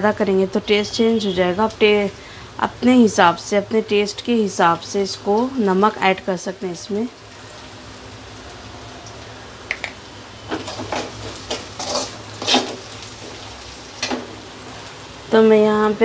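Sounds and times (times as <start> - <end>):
faint oil sizzle: 0.0 - 16.0
metal spoon scraping a metal pan: 10.5 - 13.4.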